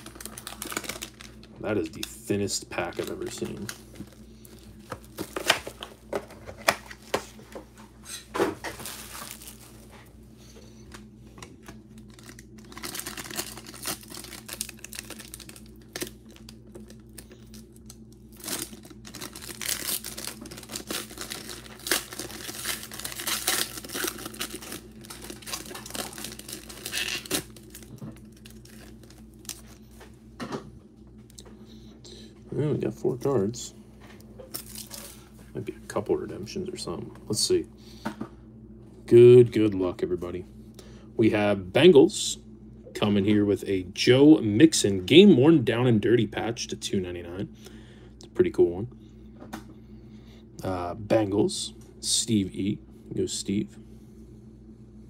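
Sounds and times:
foil wrapper tearing and crinkling: 0:00.0 - 0:02.2, 0:02.8 - 0:06.0, 0:08.7 - 0:09.8, 0:11.6 - 0:29.8, 0:34.5 - 0:35.2.

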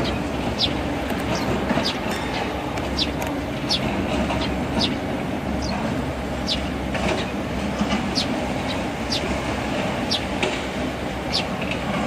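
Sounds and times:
low mechanical rumble with hiss: 0:00.0 - 0:12.0.

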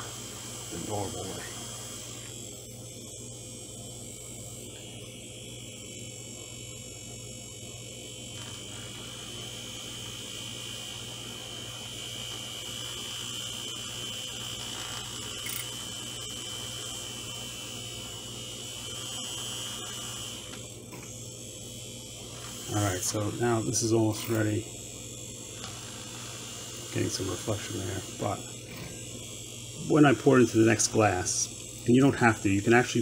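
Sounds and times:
milk frother buzzing: 0:00.0 - 0:33.0.

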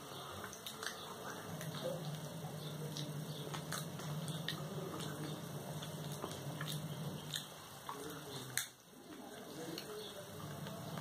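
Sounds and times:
chewing and biting: 0:00.4 - 0:11.0
low hum: 0:01.2 - 0:07.4.

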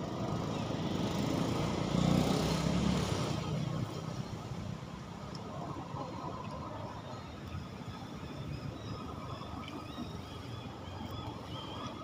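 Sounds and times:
vehicle engine passing by: 0:00.8 - 0:04.0.

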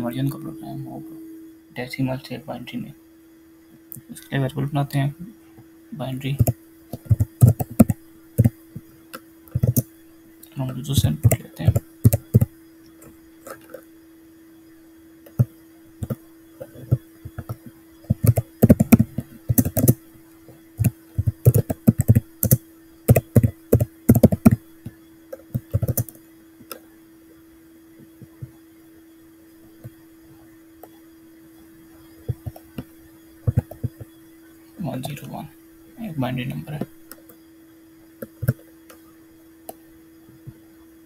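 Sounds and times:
typing on computer keyboard: 0:06.4 - 0:08.6, 0:09.5 - 0:09.9, 0:11.2 - 0:12.5, 0:15.3 - 0:20.0, 0:20.8 - 0:24.6, 0:25.4 - 0:26.2, 0:33.5 - 0:34.0, 0:38.2 - 0:38.6.

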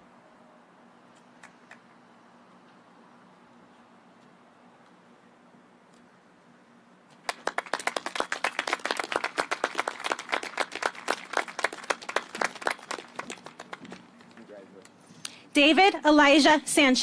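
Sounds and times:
people clapping: 0:07.2 - 0:14.9.

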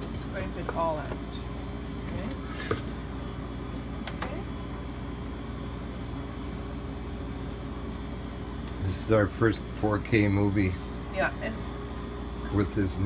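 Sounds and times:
steady low hum: 0:00.0 - 0:13.0
scraper scraping plastic bowl: 0:02.4 - 0:02.9.

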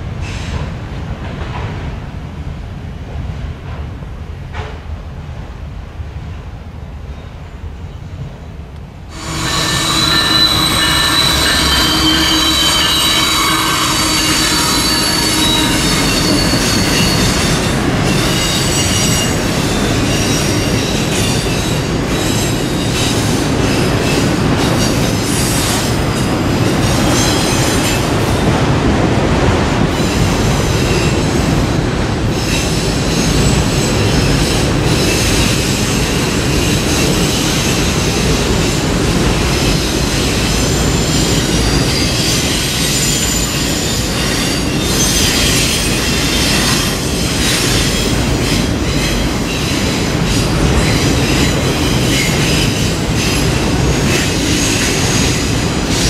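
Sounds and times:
freight train rolling: 0:00.0 - 0:56.0
train wheels squealing: 0:09.1 - 0:28.2, 0:32.3 - 0:56.0.

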